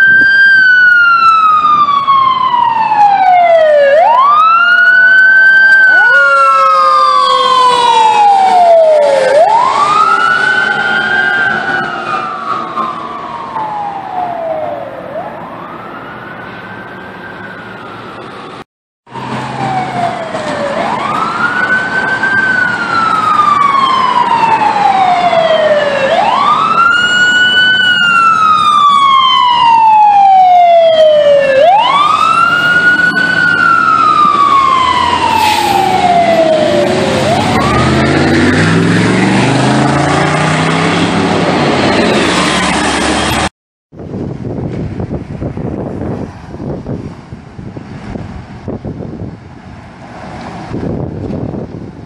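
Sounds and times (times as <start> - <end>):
siren wailing: 0.0 - 43.5.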